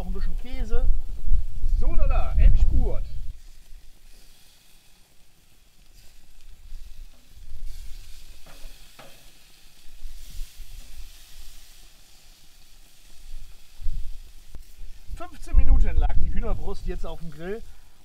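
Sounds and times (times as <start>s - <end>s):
wind rumbling on microphone: 0.0s - 4.0s, 6.3s - 8.4s, 13.1s - 17.4s
chicken sizzling on grill: 0.2s - 18.0s.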